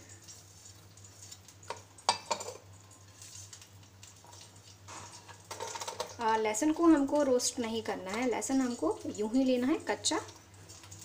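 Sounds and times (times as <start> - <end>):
dishes knocking and clinking: 1.7 - 2.6.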